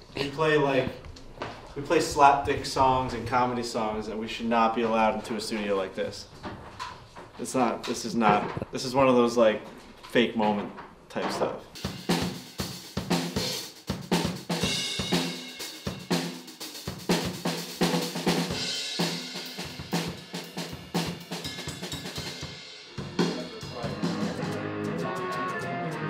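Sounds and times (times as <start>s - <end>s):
drum kit playing a beat: 11.7s - 26.0s
electric stringed instrument: 23.2s - 26.0s.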